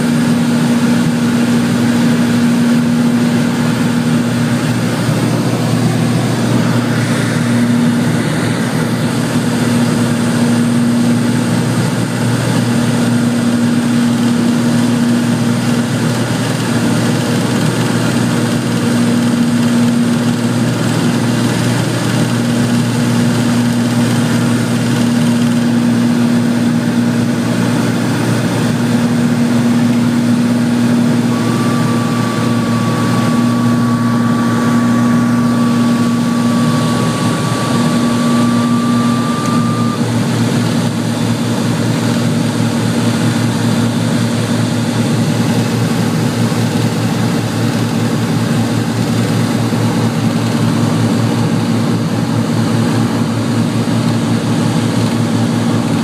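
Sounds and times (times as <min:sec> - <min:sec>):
propeller aircraft engine droning: 0:00.0 - 0:56.0
thin high tone: 0:31.2 - 0:40.1.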